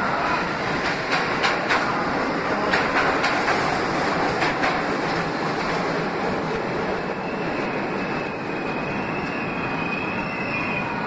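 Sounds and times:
train wheels rumbling on rail: 0:00.0 - 0:11.0.

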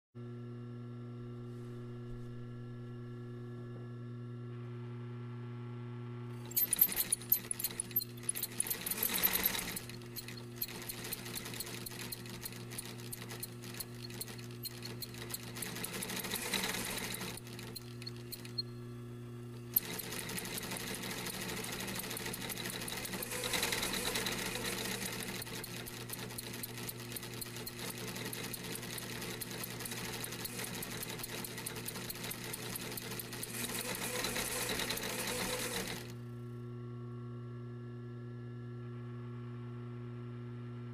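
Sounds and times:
sewing machine stitching clatter: 0:06.4 - 0:18.6, 0:19.6 - 0:36.2
sewing machine motor hum: 0:06.4 - 0:36.4.

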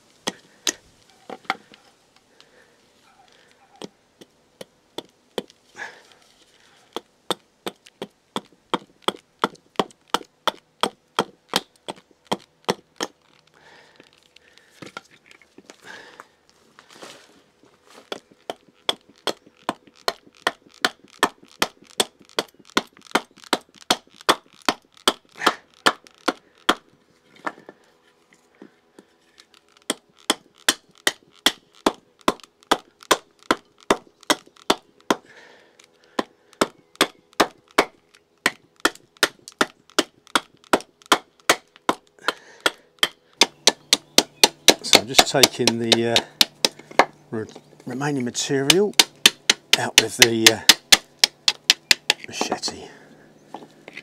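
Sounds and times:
blade chopping into wood: 0:07.0 - 0:13.2, 0:18.1 - 0:27.7, 0:29.8 - 0:35.3, 0:36.1 - 0:47.1, 0:48.6 - 0:52.8.

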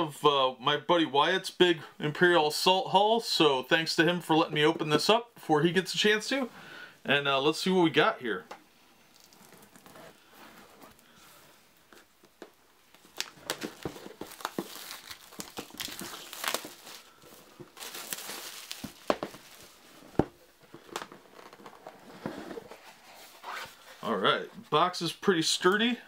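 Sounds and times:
plastic shrink-wrap crinkling: 0:09.0 - 0:11.1, 0:12.9 - 0:23.9.

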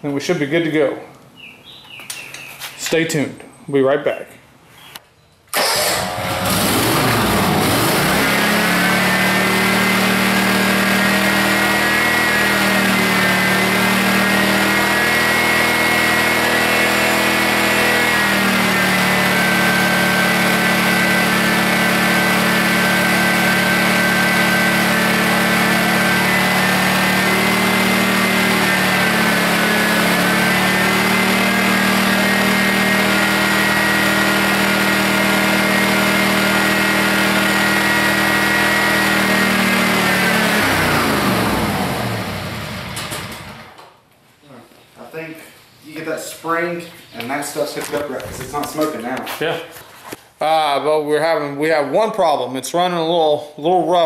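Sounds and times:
mower engine running: 0:05.6 - 0:43.7.

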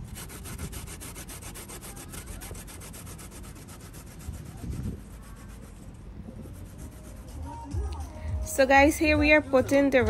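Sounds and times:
grater rasping: 0:00.0 - 0:05.8.

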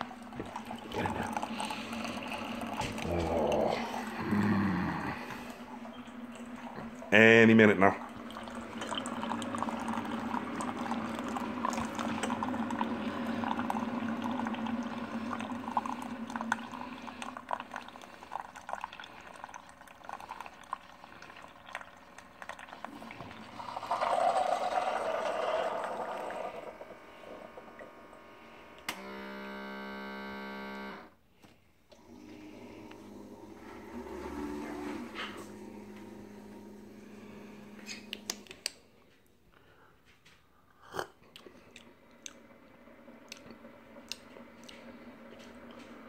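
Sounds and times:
coffee maker sputtering burst: 0:00.0 - 0:21.6, 0:22.4 - 0:31.0
coffee maker gurgling and hissing: 0:00.0 - 0:31.2, 0:31.9 - 0:38.7, 0:40.8 - 0:46.0
steady buzzing tone: 0:26.5 - 0:31.2.

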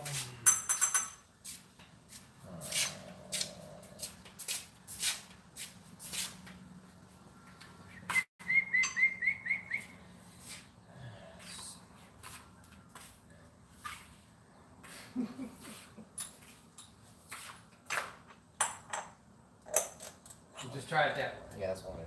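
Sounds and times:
footsteps: 0:01.4 - 0:08.3, 0:11.4 - 0:15.0.

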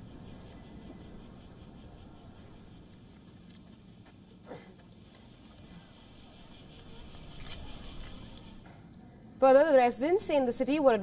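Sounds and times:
high-pitched insect chorus: 0:00.0 - 0:08.7.

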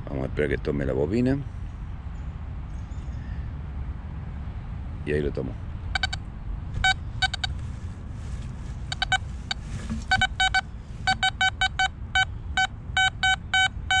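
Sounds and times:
low steady rumble: 0:03.9 - 0:13.2
metal detector beeps: 0:06.0 - 0:06.2, 0:06.8 - 0:07.6, 0:08.9 - 0:14.0.

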